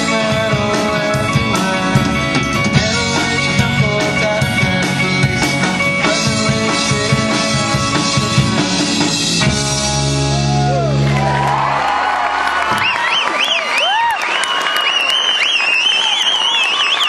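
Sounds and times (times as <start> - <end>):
drum kit: 0.0 - 11.7
rock band playing live: 0.0 - 13.2.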